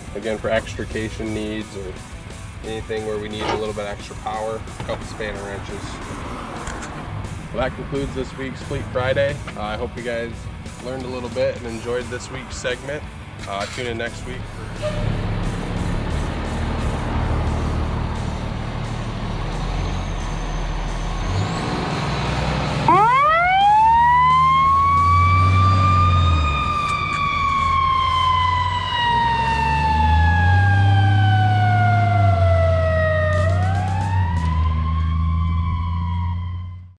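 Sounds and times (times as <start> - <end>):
fire engine engine running: 14.2 - 36.9
siren winding up and down: 19.8 - 36.9.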